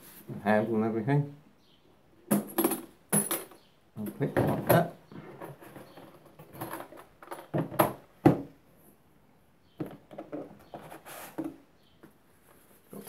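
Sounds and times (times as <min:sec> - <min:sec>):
scraping and handling noise: 0:02.3 - 0:08.0, 0:09.8 - 0:13.0.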